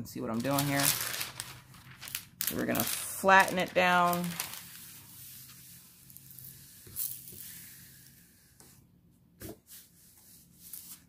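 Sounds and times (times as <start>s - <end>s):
paper rustling: 0.4s - 5.8s.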